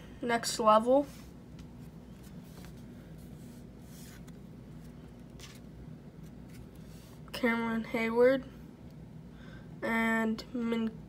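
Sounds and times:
cards scraping and flicking: 0:03.9 - 0:07.2.

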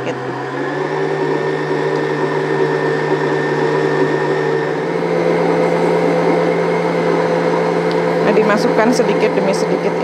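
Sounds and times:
stand mixer motor running: 0:00.0 - 0:10.0.

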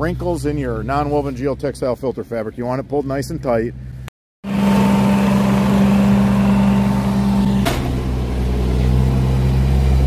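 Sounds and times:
loader engine running: 0:03.8 - 0:10.0
sharp knock: 0:07.6 - 0:08.1.

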